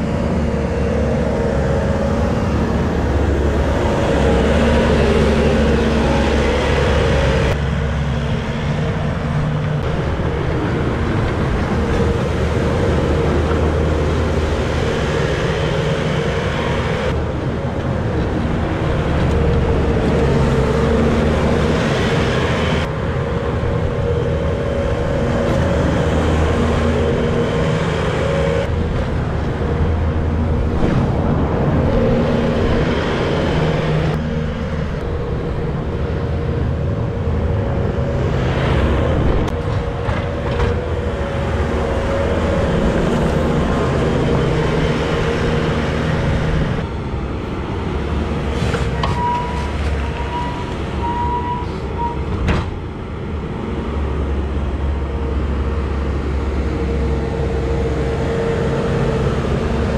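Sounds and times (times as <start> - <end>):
diesel engine running under load: 0.0 - 59.9.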